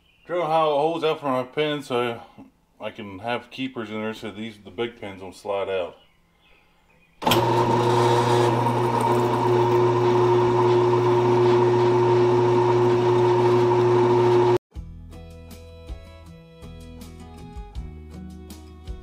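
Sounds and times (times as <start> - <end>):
drill press drilling steel: 7.2 - 14.6.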